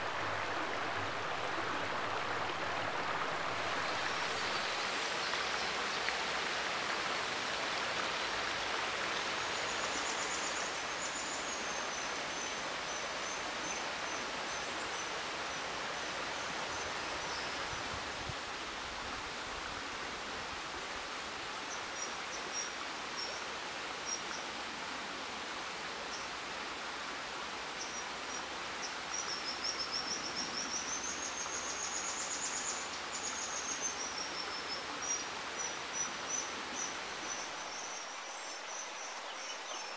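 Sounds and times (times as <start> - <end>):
water rushing over rocks: 0.0 - 21.5.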